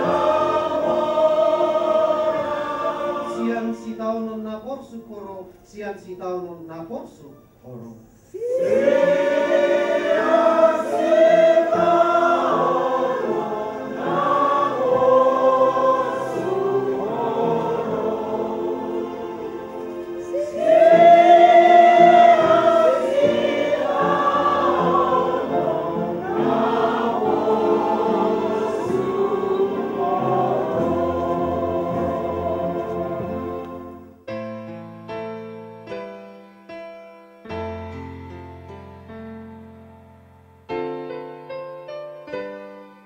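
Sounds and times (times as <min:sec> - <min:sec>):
group singing a hymn: 0:00.0 - 0:04.3, 0:08.3 - 0:34.2.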